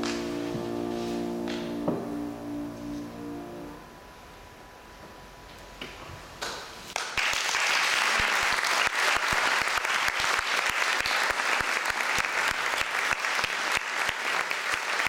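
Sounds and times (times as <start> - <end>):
audience applauding: 6.9 - 15.0.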